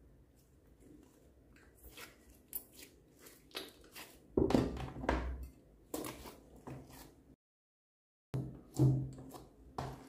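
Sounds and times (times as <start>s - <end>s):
wet slime squishes: 0.3s - 4.4s.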